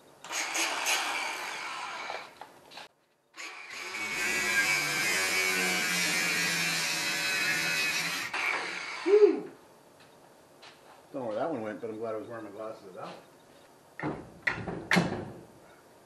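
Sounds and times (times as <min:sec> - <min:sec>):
cordless drill running: 0:00.2 - 0:02.4, 0:03.4 - 0:09.1.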